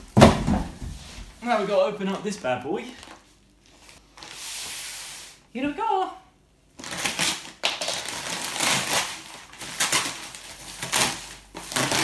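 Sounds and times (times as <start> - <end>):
bubble wrap crinkling: 1.1 - 5.2, 6.8 - 12.0
paper mailer rustling and tearing: 6.8 - 12.0.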